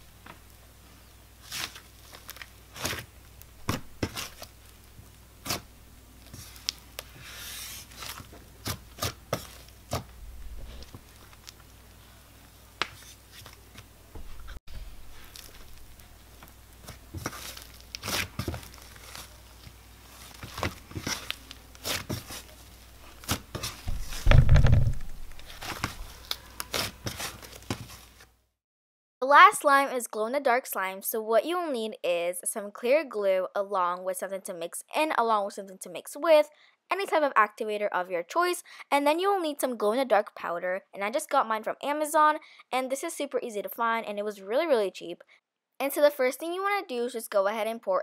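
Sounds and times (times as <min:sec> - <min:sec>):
dull thump: 0:23.8 - 0:26.0.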